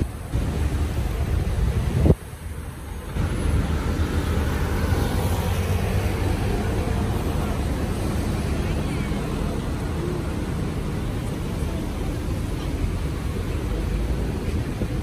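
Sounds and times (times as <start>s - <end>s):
wind buffeting microphone: 0.0s - 2.4s
low street traffic rumble: 0.0s - 15.0s.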